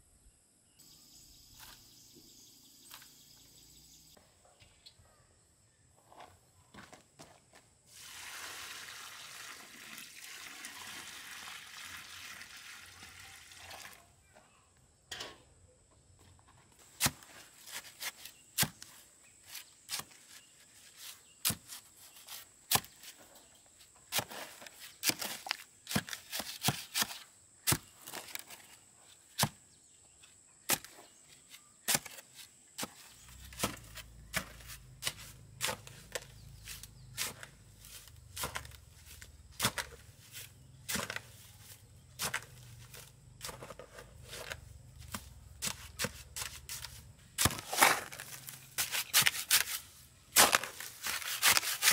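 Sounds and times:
hand tool chopping: 17.0 - 18.9, 21.4 - 23.2, 24.1 - 28.5, 30.7 - 31.0, 31.8 - 51.9.

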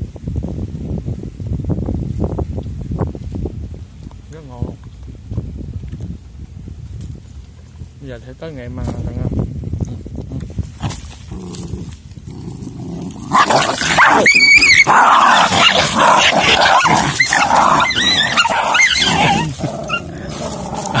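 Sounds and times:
dogs snarling and growling: 10.8 - 21.0
dog yelps: 13.4 - 20.1.

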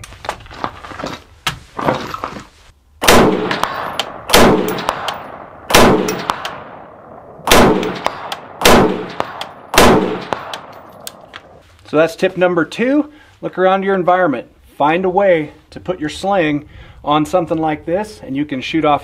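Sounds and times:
rifle shots with echo: 3.0 - 11.0.

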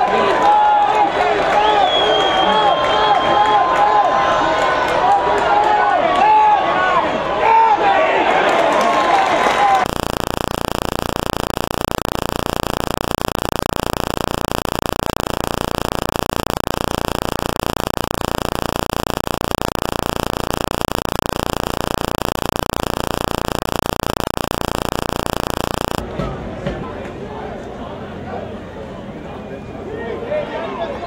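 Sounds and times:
electronic static hiss: 9.7 - 26.0.

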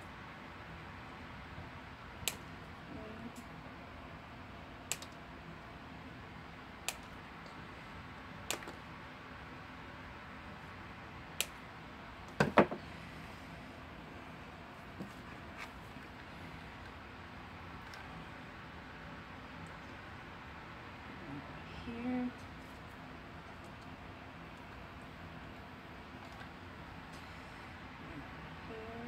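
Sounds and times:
scissors snipping: 4.9 - 5.2.

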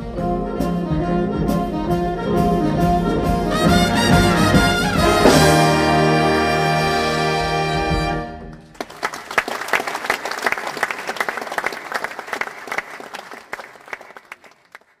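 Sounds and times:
big band brass chord: 0.0 - 8.5
audience applauding: 8.6 - 15.0.

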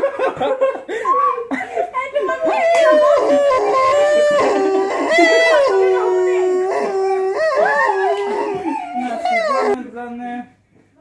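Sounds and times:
howling: 2.4 - 9.8.

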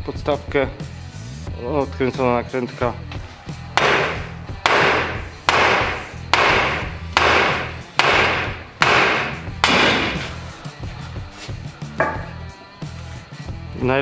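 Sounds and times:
hammer striking metal: 3.8 - 10.4, 12.0 - 12.4.

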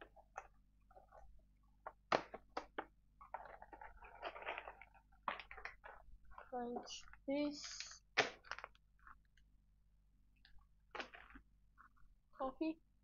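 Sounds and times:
packaging clicks and taps: 1.8 - 9.2
packaging rustling: 1.9 - 9.2.

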